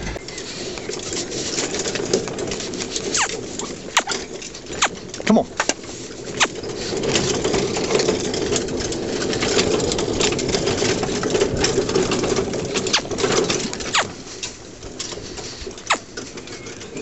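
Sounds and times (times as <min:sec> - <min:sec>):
metal cart rattling over grass: 0:00.0 - 0:17.0
sharp high-to-low squeaks: 0:03.1 - 0:04.2.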